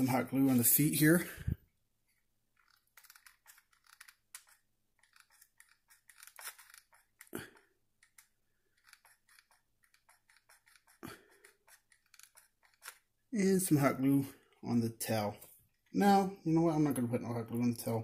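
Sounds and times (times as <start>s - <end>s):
plastic toy being handled: 0.0s - 13.3s, 15.3s - 16.1s.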